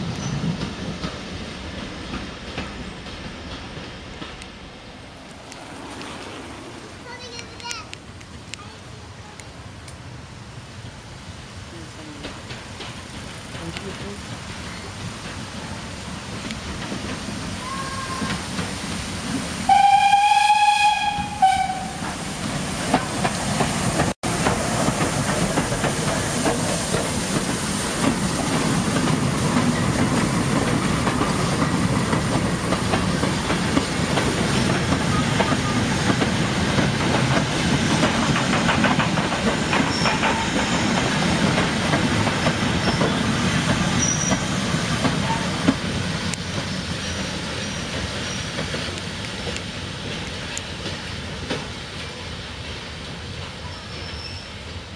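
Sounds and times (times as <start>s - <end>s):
wheels clicking over rail joints: 0.0s - 10.1s, 11.9s - 19.6s, 21.1s - 54.4s
train running past: 0.0s - 54.9s
steam locomotive whistle: 19.7s - 22.1s.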